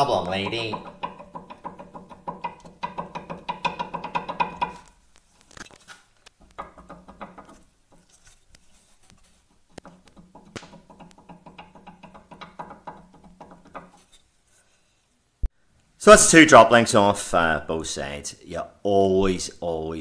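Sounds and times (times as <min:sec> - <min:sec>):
light clicks and knocks: 0:00.0 - 0:05.0, 0:06.2 - 0:14.2.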